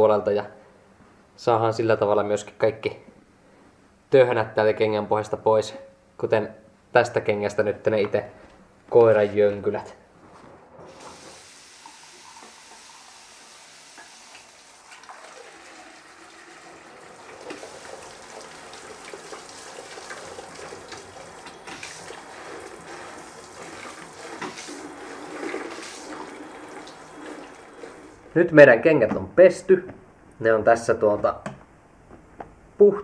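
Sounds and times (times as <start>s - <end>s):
water spray hissing: 10.9s - 14.6s, 19.1s - 28.2s
water splashing into toilet bowl: 10.9s - 28.3s.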